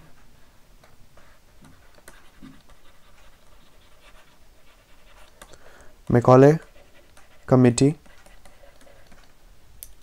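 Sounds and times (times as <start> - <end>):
stylus scratching on tablet: 1.2 - 9.4
light breathing: 5.4 - 6.1.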